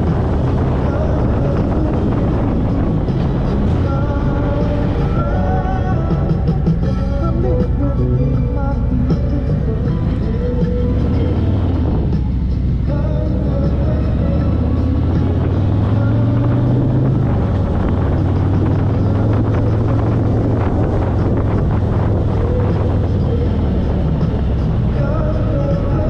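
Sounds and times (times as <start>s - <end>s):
motorcycle engine running: 0.0s - 26.0s
wind buffeting microphone: 0.0s - 26.0s.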